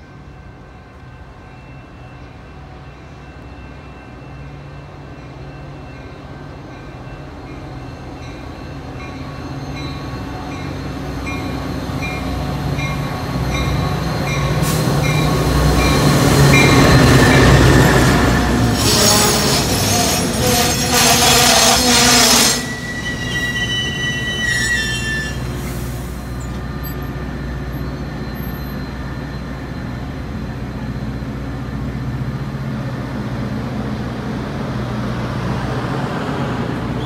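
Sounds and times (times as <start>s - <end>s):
diesel locomotive engine: 0.0s - 37.0s
train wheels on rails: 0.0s - 37.0s
train bell dinging: 0.2s - 21.0s.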